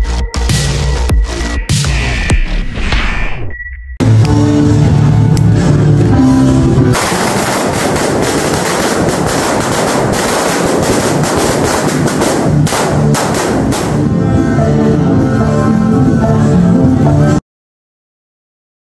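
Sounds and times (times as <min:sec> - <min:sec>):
background music: 0:00.0 - 0:02.1, 0:04.0 - 0:17.4
firecrackers crackling: 0:07.0 - 0:14.2.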